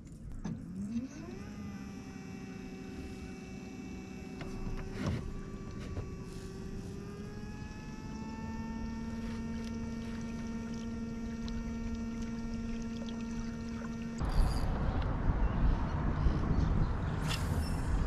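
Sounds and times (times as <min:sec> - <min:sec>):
electric motor whine: 0:00.6 - 0:14.2.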